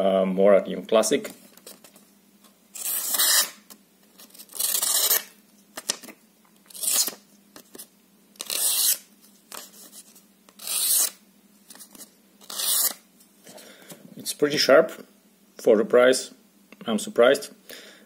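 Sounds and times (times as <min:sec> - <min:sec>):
knife blade slicing paper: 0:02.8 - 0:03.6, 0:04.3 - 0:05.9, 0:06.7 - 0:07.2, 0:08.4 - 0:09.8, 0:10.6 - 0:11.2, 0:12.0 - 0:13.0.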